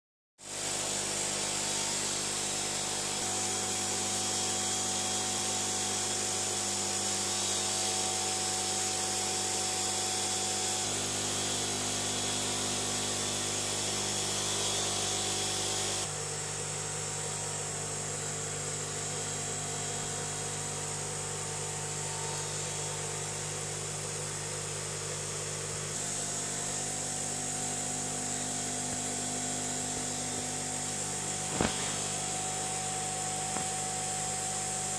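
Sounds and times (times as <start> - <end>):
air pumps buzzing: 0.5 - 16.2, 18.2 - 34.9
air bubbling hiss: 31.4 - 32.8.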